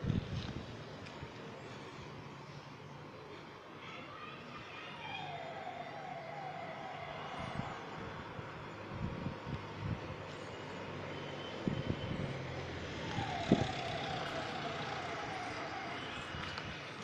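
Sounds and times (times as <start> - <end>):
street noise: 0.0 - 17.0
motor vehicle passing: 5.4 - 17.0.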